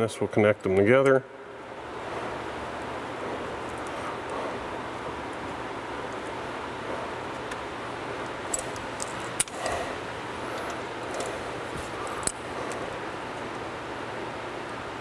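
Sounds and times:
faint hum: 0.0 - 15.0
pliers clicking and snapping: 8.5 - 9.8.

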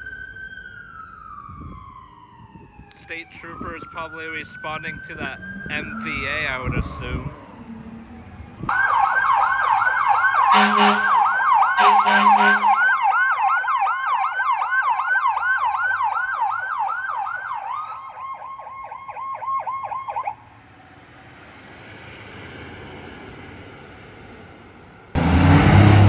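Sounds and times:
emergency siren yelping: 0.0 - 26.0
low traffic hum: 0.0 - 26.0
short horn blasts: 10.5 - 11.1, 11.8 - 12.7.

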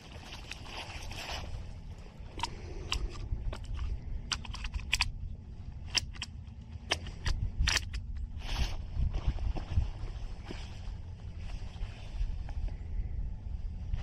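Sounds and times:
wind rumble on microphone: 0.0 - 14.0
rifle handling clicks and rattles: 2.2 - 8.3.

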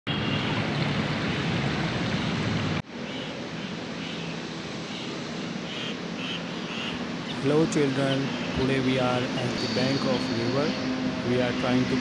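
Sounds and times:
river water rushing: 0.1 - 9.6.

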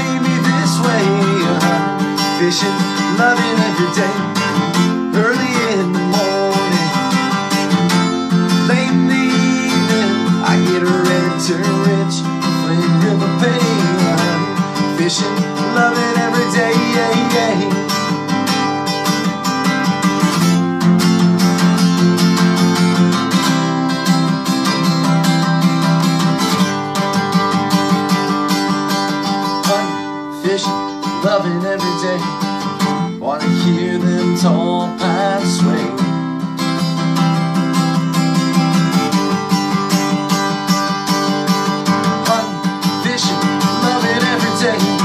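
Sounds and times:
man singing: 0.0 - 18.6, 29.2 - 36.7, 40.5 - 45.0
acoustic guitar strumming: 0.0 - 45.0.

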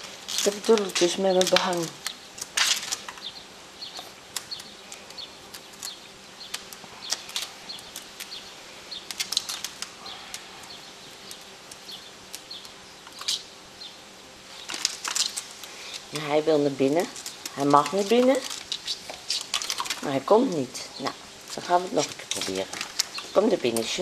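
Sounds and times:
kitten claws scratching curtain: 9.0 - 13.5, 16.9 - 20.1.

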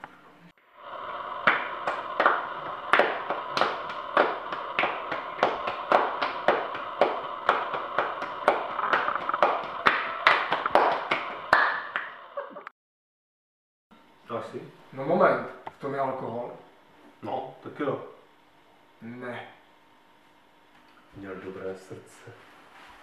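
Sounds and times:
hand-clapping game: 1.4 - 12.3.

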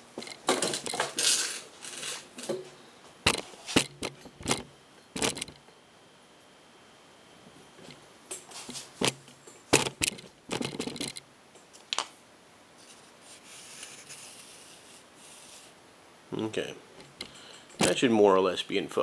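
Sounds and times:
rubbing and scraping: 12.8 - 15.8.

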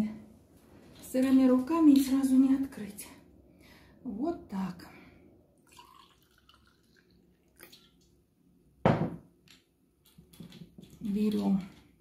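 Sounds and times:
sparkling wine pouring and fizzing: 5.6 - 8.2.

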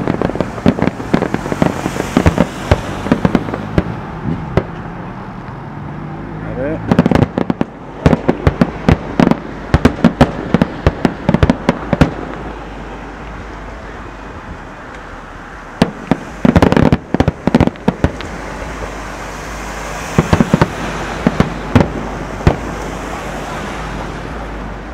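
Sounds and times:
fireworks bursting bangs: 0.0 - 4.9, 6.8 - 13.2, 15.8 - 24.1.

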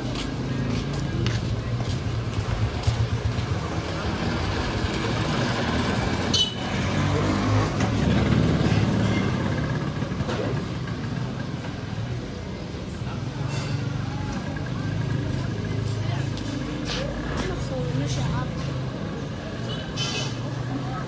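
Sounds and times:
people talking: 12.9 - 21.0
short high-pitched squeak: 20.0 - 20.4.

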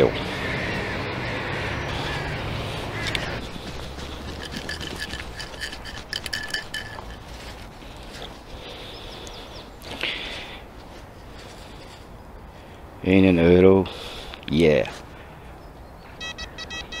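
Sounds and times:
metal scoop sifting sand: 3.4 - 8.0
coin rattling against metal: 4.1 - 7.3.

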